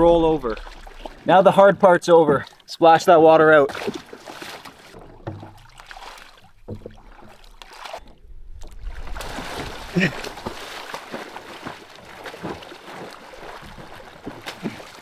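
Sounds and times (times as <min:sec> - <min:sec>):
water splashing and sloshing: 0:00.0 - 0:15.0.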